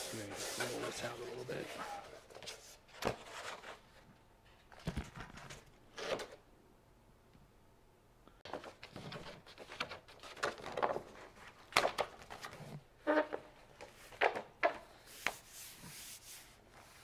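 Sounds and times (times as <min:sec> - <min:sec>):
paper sliding hiss: 0:00.0 - 0:01.8, 0:14.9 - 0:17.0
stiff paper rustling and crackling: 0:08.4 - 0:12.8.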